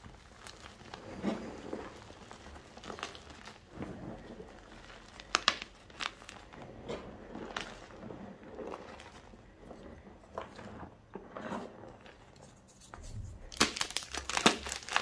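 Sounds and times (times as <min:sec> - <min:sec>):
sharp chalk cracks: 0:05.2 - 0:06.4, 0:12.4 - 0:15.0
chalk crunching by hand: 0:12.4 - 0:15.0.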